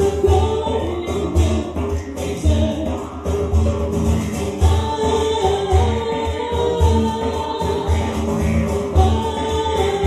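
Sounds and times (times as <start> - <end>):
didgeridoo drone: 0.0 - 10.0
drum beats: 0.0 - 10.0
guitar: 0.0 - 10.0
voices singing slow melody: 4.6 - 10.0.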